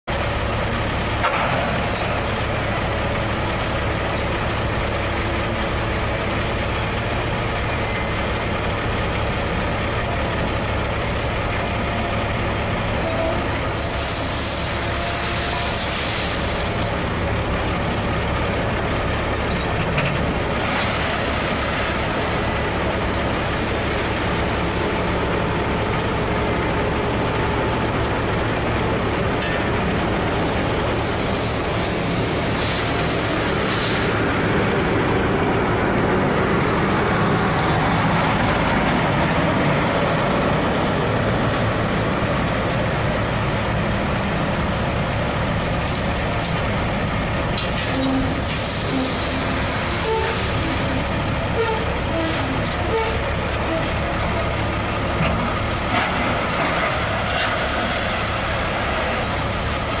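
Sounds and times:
heavy diesel machinery running: 0:00.0 - 1:00.0
hissing bursts: 0:13.6 - 0:16.6, 0:30.9 - 0:34.2.

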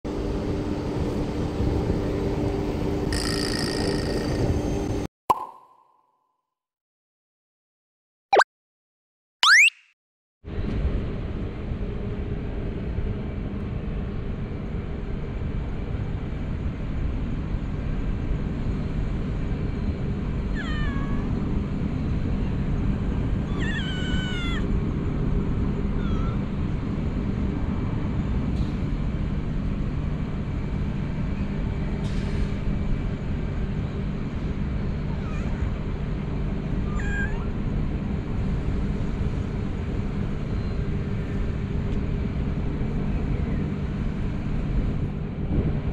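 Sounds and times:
cat meowing: 0:20.5 - 0:21.3, 0:23.4 - 0:24.7, 0:26.0 - 0:26.5, 0:35.1 - 0:35.7, 0:36.9 - 0:37.6.

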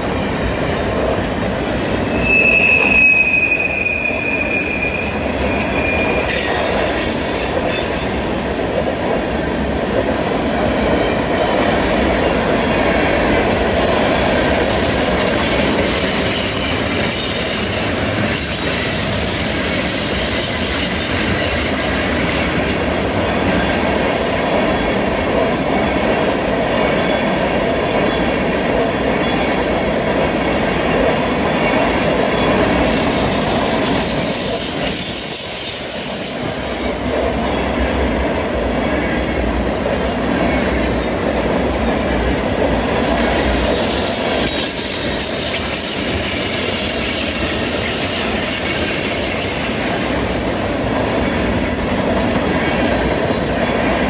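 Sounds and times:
train wheels rumbling on rail: 0:00.0 - 0:54.0
wheel squeal: 0:02.1 - 0:11.2, 0:15.4 - 0:22.4, 0:32.4 - 0:36.6, 0:43.6 - 0:53.7.

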